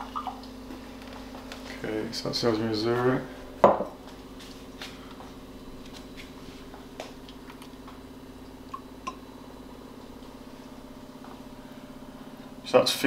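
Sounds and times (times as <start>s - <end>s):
steady low hum: 0.0s - 13.0s
glass knocking on wooden worktop: 3.6s - 4.0s.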